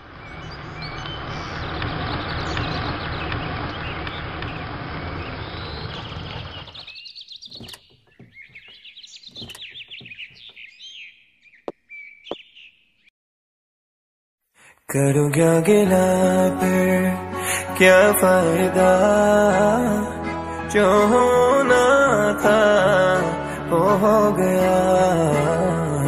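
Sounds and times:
vehicle driving up: 0.0 - 6.9
birds chirping: 0.0 - 13.1
sharp clicks and knocks: 7.4 - 10.6.

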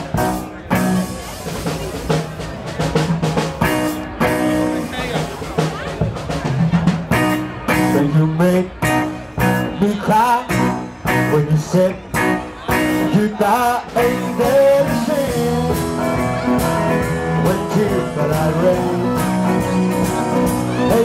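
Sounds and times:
live rock and roll band: 0.0 - 21.0.

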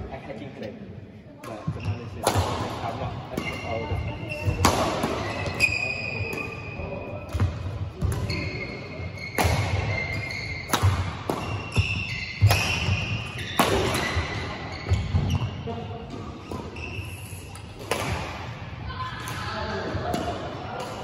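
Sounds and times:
court shoes squeaking: 1.4 - 2.5, 3.3 - 18.1
rackets hitting shuttlecock: 1.4 - 15.5, 16.1 - 18.6, 19.2 - 21.0.

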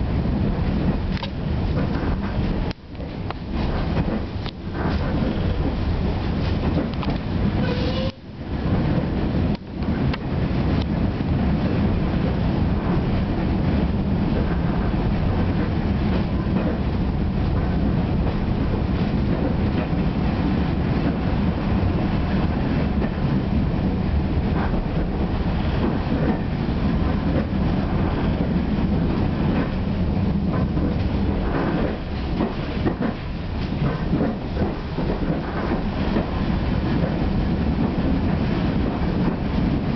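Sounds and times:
railway coach body rattling: 0.0 - 39.9
train wheels on rails: 0.0 - 39.9.

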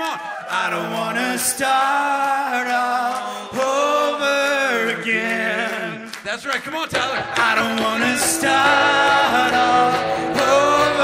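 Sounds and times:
backing music: 6.9 - 11.0
man singing long notes: 6.9 - 11.0.

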